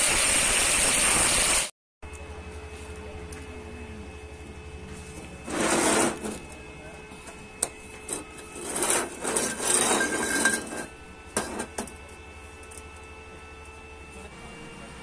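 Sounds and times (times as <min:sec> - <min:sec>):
steel tubes scraping on steel: 0:05.4 - 0:06.4, 0:08.0 - 0:11.9.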